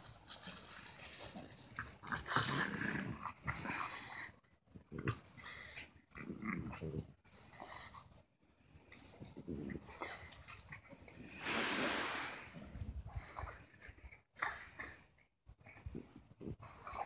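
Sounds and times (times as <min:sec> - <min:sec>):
dogs growling while play-fighting: 0:01.8 - 0:07.9, 0:09.2 - 0:11.3.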